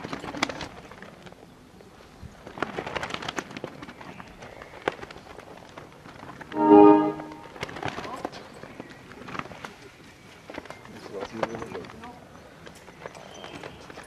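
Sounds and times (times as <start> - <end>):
cloth flags flapping: 0.0 - 14.0
short loud pitched sound: 6.6 - 7.5.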